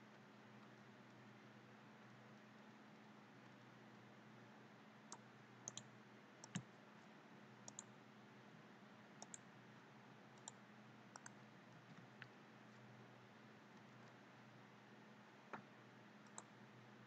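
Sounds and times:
faint electrical hum: 0:00.0 - 0:17.0
computer mouse clicking: 0:05.1 - 0:06.7, 0:07.6 - 0:07.9, 0:09.2 - 0:09.5, 0:10.4 - 0:12.4, 0:15.5 - 0:16.5.

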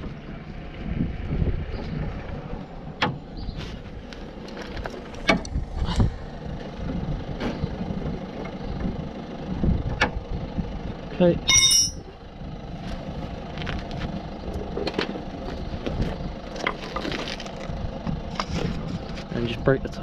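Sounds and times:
low background rumble: 0:00.0 - 0:20.0
spanner clinking against nut: 0:11.5 - 0:12.0.

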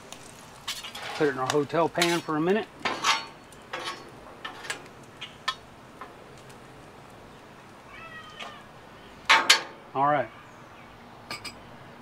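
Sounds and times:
grease sizzling: 0:00.0 - 0:10.0
spatulas scraping on griddle: 0:00.6 - 0:06.2.

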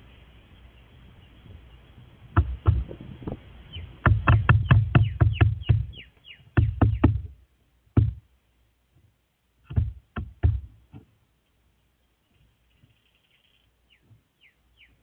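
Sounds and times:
crow pecking on wooden railing: 0:02.3 - 0:07.4, 0:09.6 - 0:11.2.

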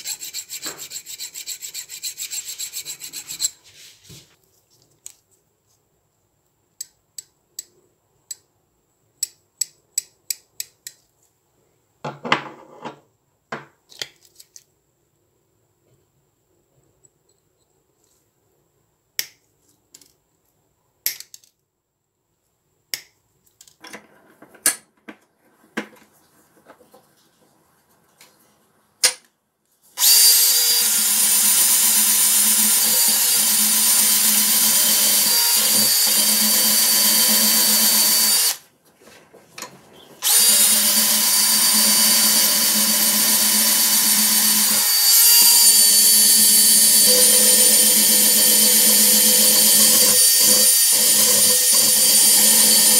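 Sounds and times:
drill spinning wire wheel: 0:00.0 - 0:03.6, 0:30.0 - 0:38.6, 0:40.2 - 0:52.9.

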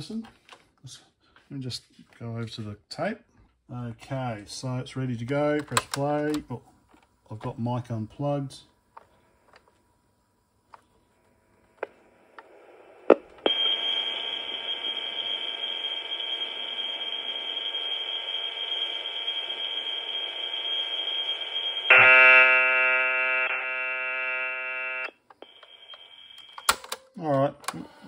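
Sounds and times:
high data leader tone: 0:12.6 - 0:26.7
loud data tone: 0:12.7 - 0:26.7.

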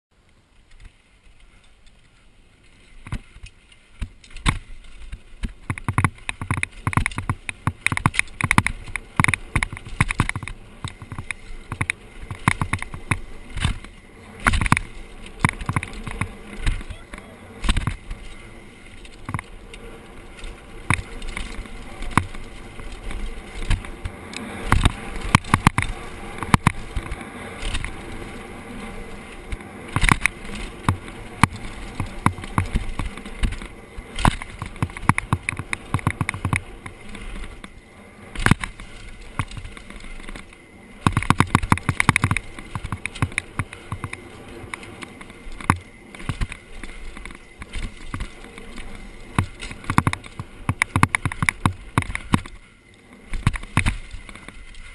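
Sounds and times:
rushing noise of riding: 0:00.1 - 0:54.9
bike knocking and rattling: 0:00.2 - 0:54.9.

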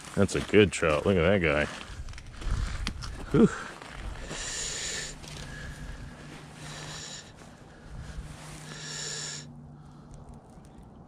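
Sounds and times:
man breathing hard: 0:01.7 - 0:10.4.

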